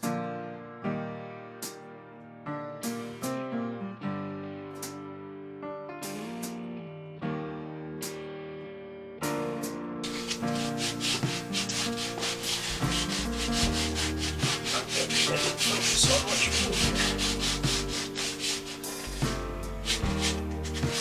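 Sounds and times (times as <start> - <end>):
sanding sponge rubbing wood: 10.1 - 21.0.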